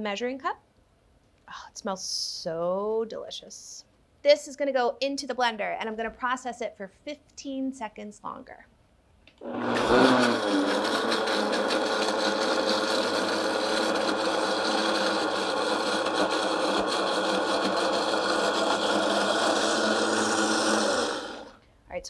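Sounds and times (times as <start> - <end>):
blender motor running: 9.4 - 21.6.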